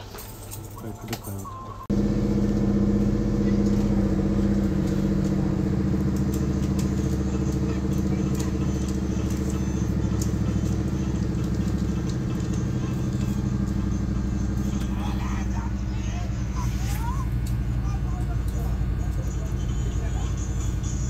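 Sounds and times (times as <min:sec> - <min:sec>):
hot air gun fan hum: 0:01.9 - 0:21.0.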